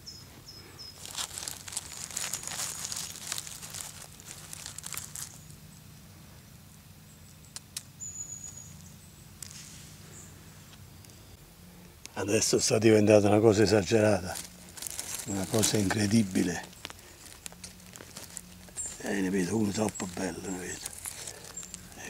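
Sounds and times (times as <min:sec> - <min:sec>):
dry leaves crackling and rustling: 0:00.9 - 0:05.8, 0:08.4 - 0:10.2, 0:12.6 - 0:22.0.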